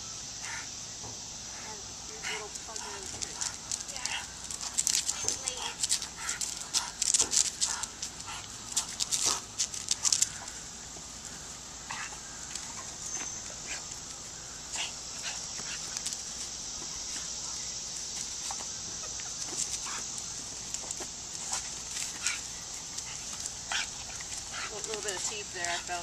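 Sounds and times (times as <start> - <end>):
outdoor hiss: 0.0 - 26.0
dogs whining: 11.9 - 16.1.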